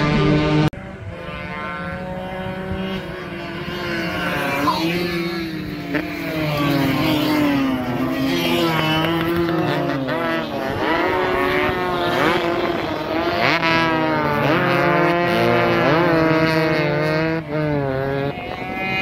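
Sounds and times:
racing motorcycles revving: 0.0s - 19.0s.

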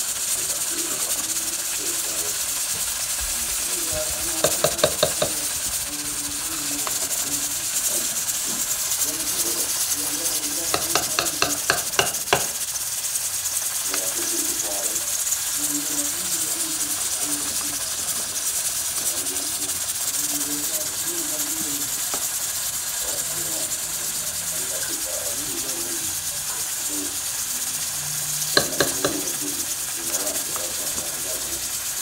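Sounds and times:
steady hiss: 0.0s - 32.0s
spoon stirring pot of rice: 4.0s - 12.9s, 28.5s - 31.2s
spoon tapping metal pot: 4.4s - 5.5s, 10.7s - 12.6s, 28.4s - 29.5s.

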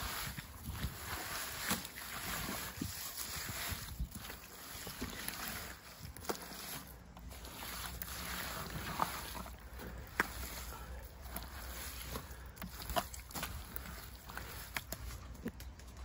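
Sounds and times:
hands squelching wet clay: 0.0s - 16.0s.

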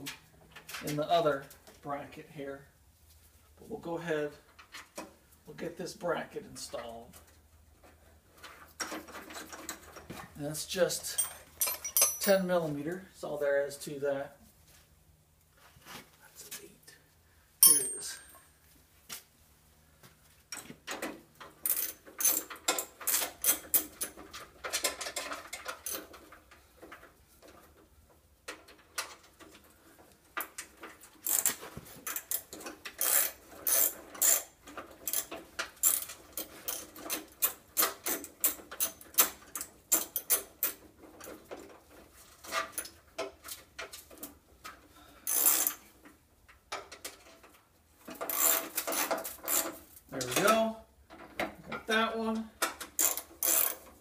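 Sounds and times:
metal parts clinking: 11.0s - 12.6s, 17.6s - 18.4s.

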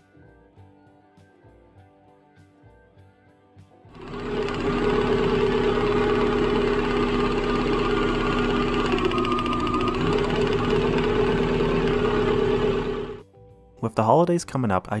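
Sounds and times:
fast ticking knock: 4.0s - 12.1s
petrol engine running: 4.0s - 13.2s.

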